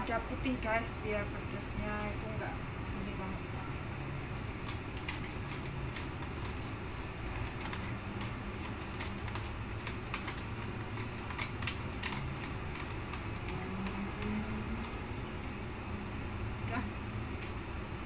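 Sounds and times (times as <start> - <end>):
low hum: 0.0 - 18.0
pepper mill grinding: 4.5 - 15.6.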